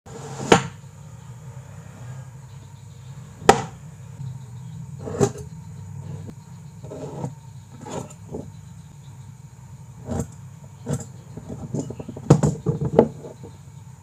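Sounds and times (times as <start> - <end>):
steady low hum: 0.1 - 14.0
tools knocking on wooden workbench: 10.9 - 13.6.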